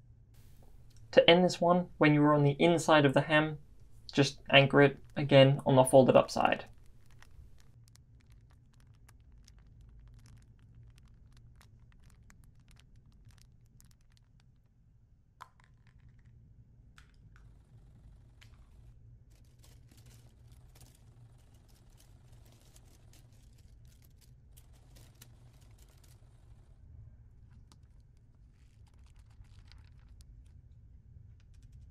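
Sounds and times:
low steady hum: 0.0s - 8.3s
cloth rustling and scratching: 0.4s - 1.1s, 3.6s - 14.0s, 19.3s - 26.7s
small clicks: 6.4s - 14.6s, 18.4s - 26.7s.

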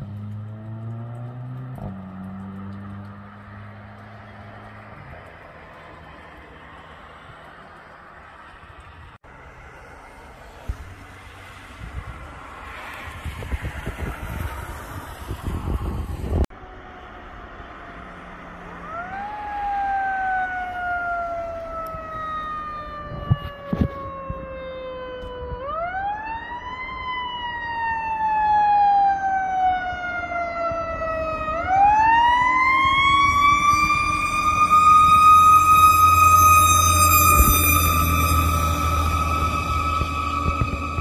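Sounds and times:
mechanical siren winding up: 31.6s - 41.0s.

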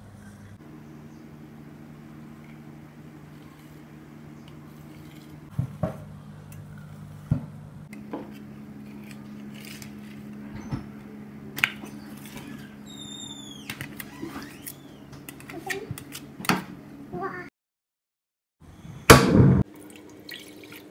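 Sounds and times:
steady low hum: 0.0s - 13.6s
high falling squeak: 12.5s - 15.0s.

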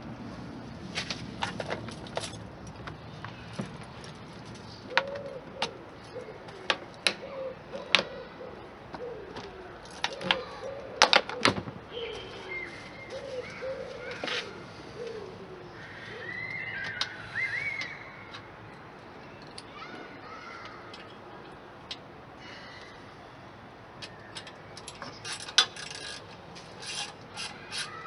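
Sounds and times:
pigeon cooing: 4.7s - 18.0s
bird chirping: 11.9s - 14.2s, 15.0s - 18.4s.

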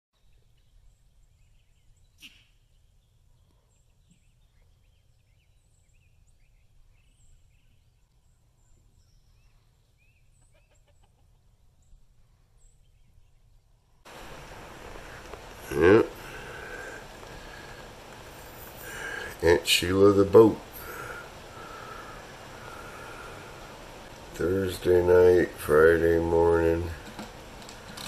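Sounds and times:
chickens clucking: 10.3s - 11.6s, 14.1s - 24.5s.

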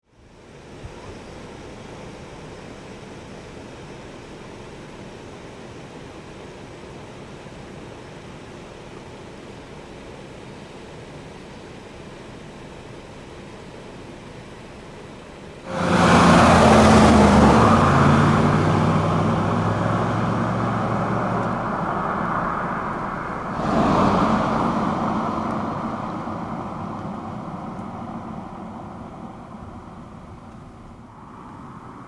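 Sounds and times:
suv engine accelerating: 15.7s - 32.0s
tyre and road noise: 15.7s - 32.0s.

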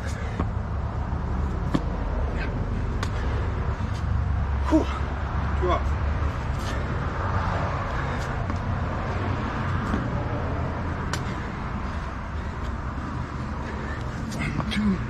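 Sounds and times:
low outdoor rumble: 0.0s - 15.0s
thuds on asphalt: 1.6s - 2.1s, 9.7s - 10.2s.

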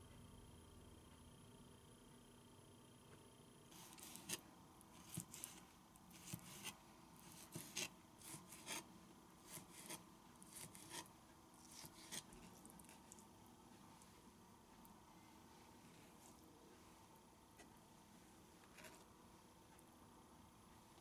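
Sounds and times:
knife scraping board: 3.8s - 4.4s, 5.0s - 13.2s
knife chopping on plastic board: 5.0s - 5.6s, 6.2s - 8.8s, 9.4s - 13.0s.

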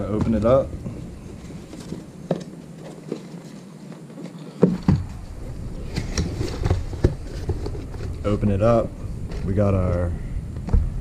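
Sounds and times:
box contents rustling: 1.0s - 8.4s.

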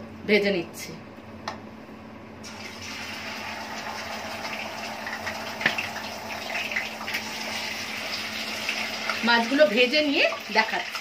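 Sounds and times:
fish sizzling in hot oil: 2.4s - 11.0s.

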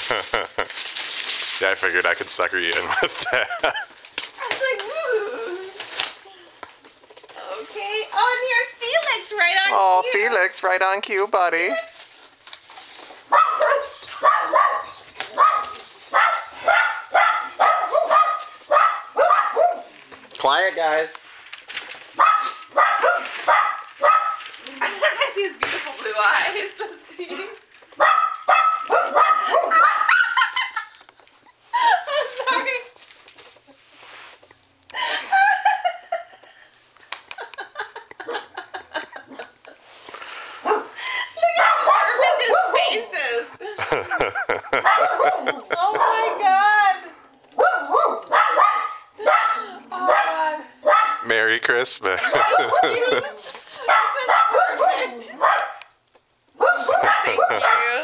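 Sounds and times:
woman laughing hard: 0.0s - 0.7s, 2.9s - 4.0s, 29.5s - 32.8s, 35.0s - 36.7s, 37.4s - 39.7s, 43.5s - 46.3s, 52.1s - 53.8s, 56.8s - 58.0s
dogs barking: 13.3s - 20.0s, 22.2s - 24.6s, 28.0s - 30.8s, 40.6s - 43.0s, 44.1s - 46.7s, 47.5s - 55.9s, 56.5s - 58.0s.

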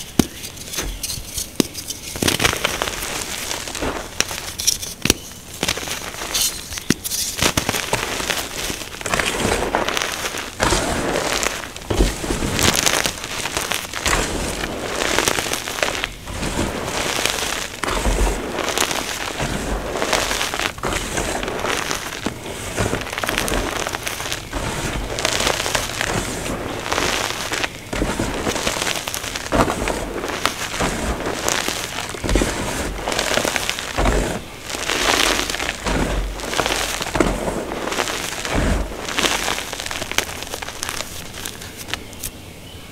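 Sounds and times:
hands crunching powdery chalk: 0.0s - 42.2s.

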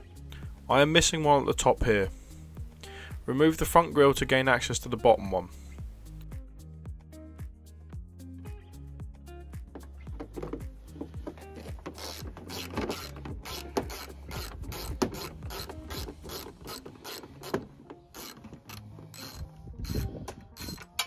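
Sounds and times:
hand ratchet clicking: 11.2s - 21.0s.

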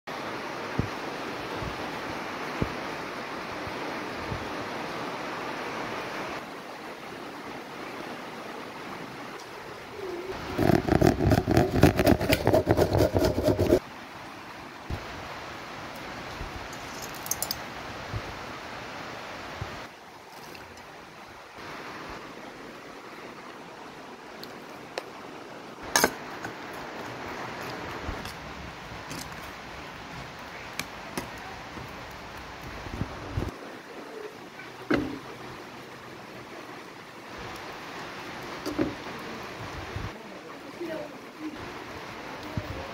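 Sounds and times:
wind on microphone: 10.1s - 13.8s, 32.6s - 33.6s
vegetable rasping on steel grater: 10.6s - 13.8s.

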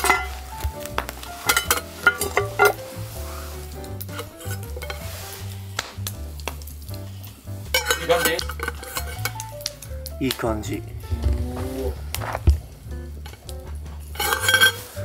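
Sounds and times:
metal pot lids clinking: 0.0s - 0.6s, 1.3s - 3.0s, 3.9s - 5.2s, 7.6s - 10.4s, 13.2s - 15.0s
background music: 0.0s - 15.0s
faint sizzling hiss: 0.0s - 15.0s.

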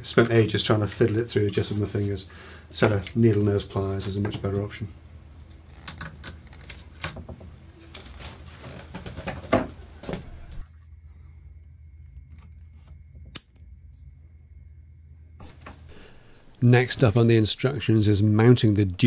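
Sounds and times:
wires rustling: 5.3s - 10.8s.

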